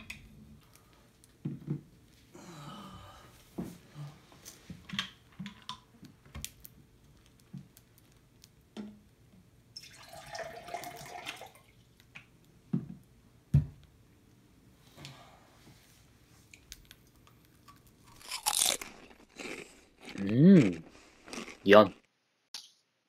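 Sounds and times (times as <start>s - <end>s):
water poured into a cup: 9.8s - 11.9s.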